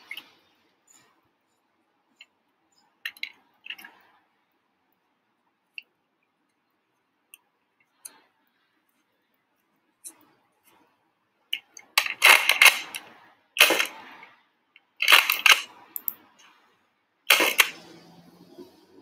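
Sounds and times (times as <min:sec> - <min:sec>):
toy blaster racking and firing: 0:12.0 - 0:14.1, 0:15.0 - 0:16.1, 0:17.3 - 0:17.8.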